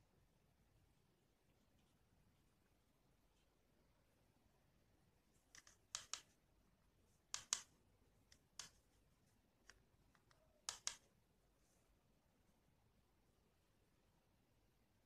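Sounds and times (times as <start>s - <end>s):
sharp light clicks and taps: 5.5s - 6.3s, 7.3s - 7.7s, 8.3s - 8.8s, 9.6s - 11.1s.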